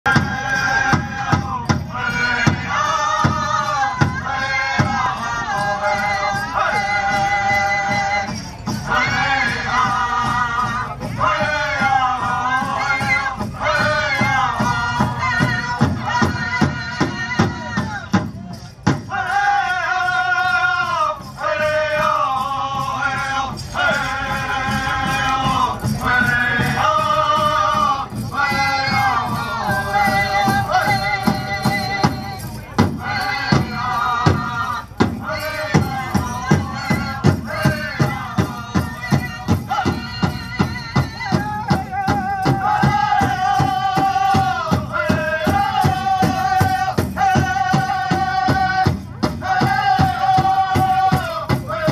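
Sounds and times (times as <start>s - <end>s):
group singing: 0.1s - 18.2s, 18.9s - 51.9s
jingling bells: 0.1s - 51.9s
steady drumbeat: 0.1s - 51.9s.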